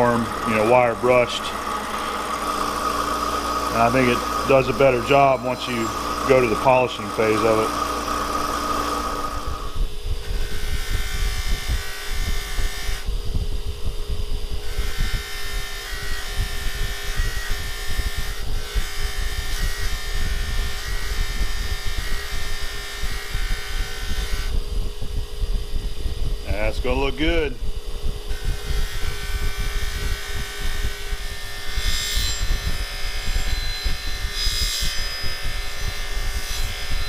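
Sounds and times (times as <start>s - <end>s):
wire brush scratching steel: 0.0s - 9.8s
motor hum: 0.0s - 37.0s.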